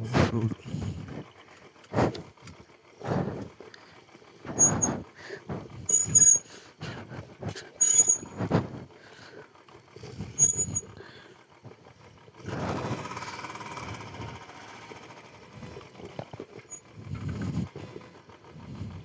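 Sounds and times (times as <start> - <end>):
motorcycle knocks and bumps: 0.0 - 3.5, 8.2 - 8.9
brief high squeaks: 5.9 - 6.4, 7.8 - 8.3, 10.4 - 10.9.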